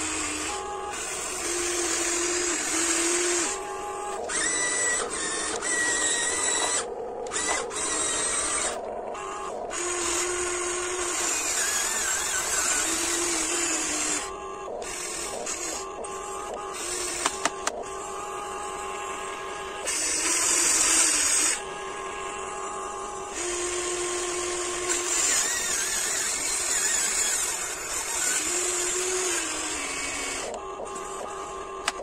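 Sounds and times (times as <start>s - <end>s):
small electric motors whirring: 0.0s - 32.0s
steady whine: 0.0s - 32.0s
clicks: 16.5s - 17.8s, 31.8s - 32.0s.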